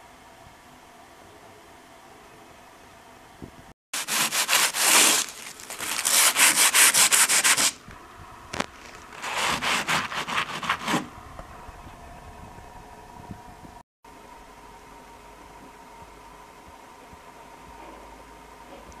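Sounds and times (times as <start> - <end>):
pad rubbing on rough plaster: 4.0 - 7.8, 9.1 - 11.1.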